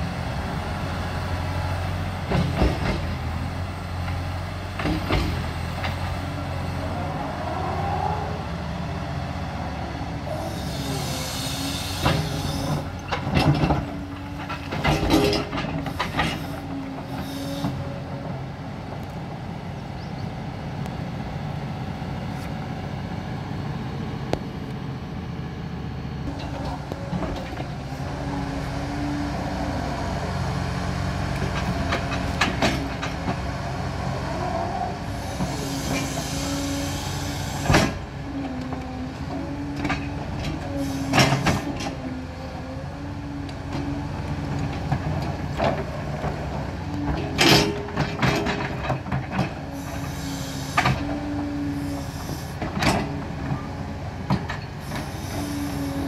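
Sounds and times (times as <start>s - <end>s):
excavator diesel engine: 0.0s - 56.0s
hydraulic whine: 10.0s - 18.4s, 34.0s - 53.6s, 54.4s - 56.0s.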